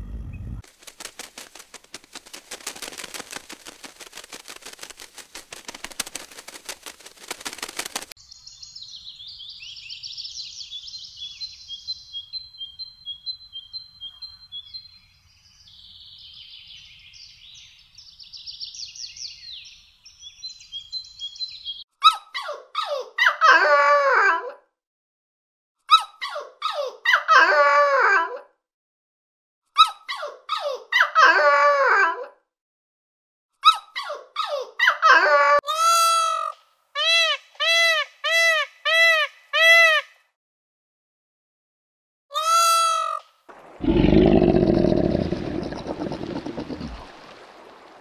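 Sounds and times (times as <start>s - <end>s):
dense crackling clicks: 0.6s - 8.1s.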